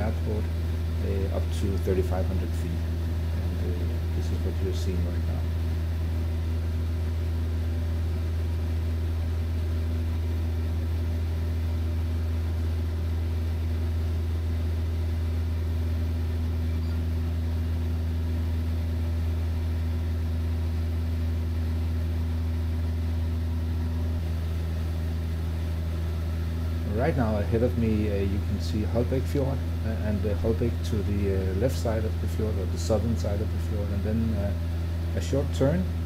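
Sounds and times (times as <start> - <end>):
light aircraft engine droning: 0.0 - 36.0.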